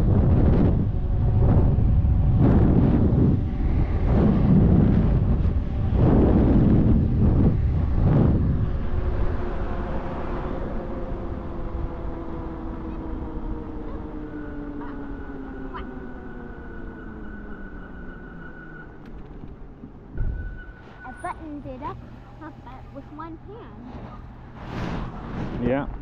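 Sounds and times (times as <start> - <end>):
wind buffeting microphone: 0.0 - 17.9.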